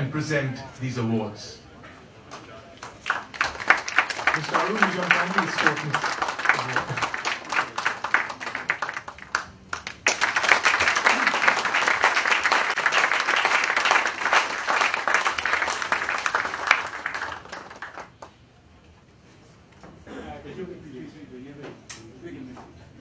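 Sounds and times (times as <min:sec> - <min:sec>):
audience applauding: 0:02.3 - 0:18.3.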